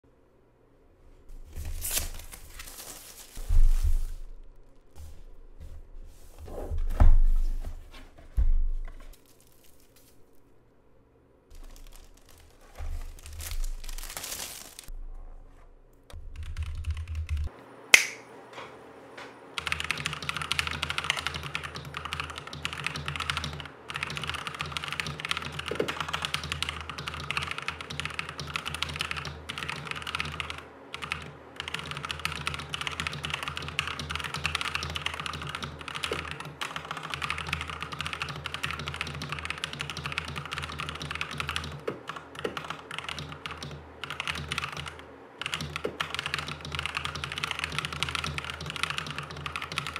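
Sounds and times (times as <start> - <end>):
packaging rustling: 1.3 - 5.0, 8.8 - 10.5, 11.5 - 14.9
fast typing on mechanical keyboard: 11.5 - 14.2, 16.2 - 17.5, 19.6 - 49.9
sharp click: 18.0 - 18.2.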